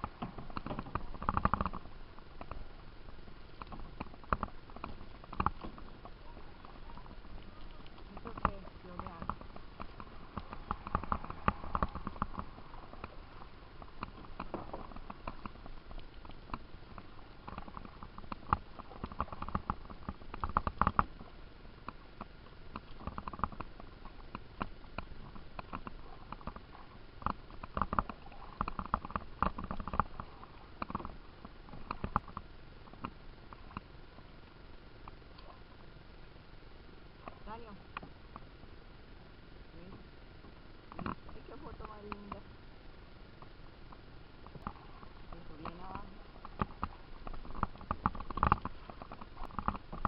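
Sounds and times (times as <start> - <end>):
paddles splashing in water: 0.0 - 34.3, 44.4 - 50.0.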